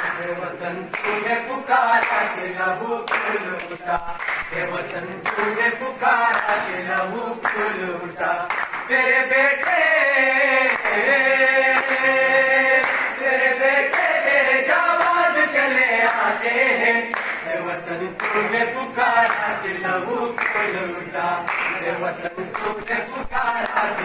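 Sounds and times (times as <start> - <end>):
clapping: 0.0 - 0.3, 0.9 - 1.2, 2.0 - 2.3, 3.0 - 5.6, 6.3 - 7.7, 8.5 - 8.9, 9.6 - 10.0, 10.6 - 11.0, 11.7 - 12.1, 12.8 - 13.2, 13.9 - 14.2, 15.0 - 15.3, 16.0 - 16.3, 17.1 - 17.4, 18.2 - 18.5, 19.2 - 19.5, 20.4 - 20.7, 21.5 - 24.0
boys singing together: 0.0 - 24.0.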